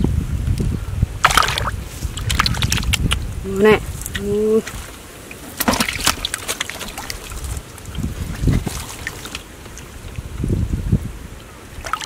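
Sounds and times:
hands splashing in shallow water: 1.2s - 3.2s, 4.1s - 9.5s.

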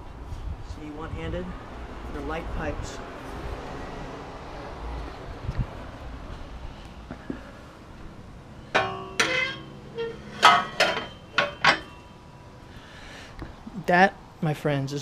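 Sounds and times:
metal pipes clanking together: 8.7s - 12.1s.

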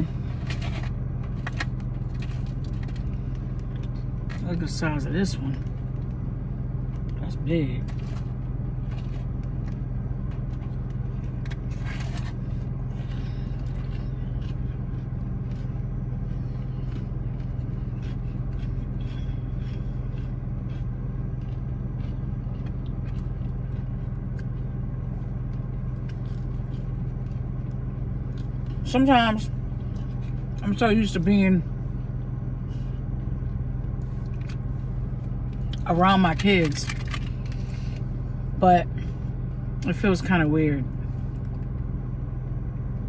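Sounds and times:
food rustling and eating: 0.0s - 4.4s, 7.8s - 28.8s, 29.5s - 31.0s, 31.8s - 39.5s
car cabin hum: 0.0s - 43.0s.

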